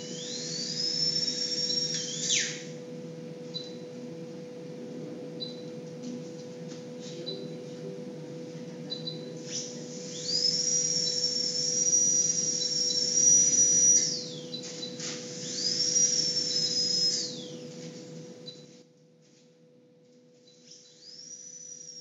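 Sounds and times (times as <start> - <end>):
dental drill whining: 0.0 - 2.8, 8.9 - 17.7, 20.7 - 22.0.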